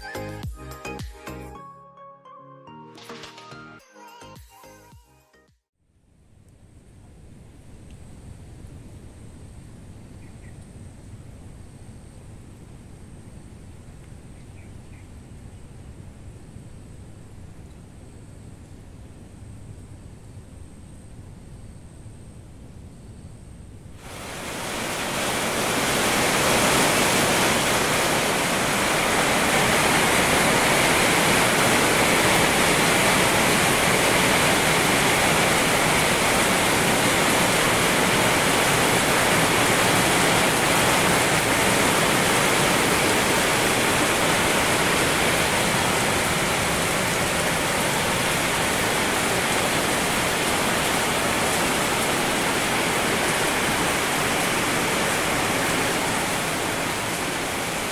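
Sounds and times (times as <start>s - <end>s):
heavy rain falling: 24.0s - 57.9s.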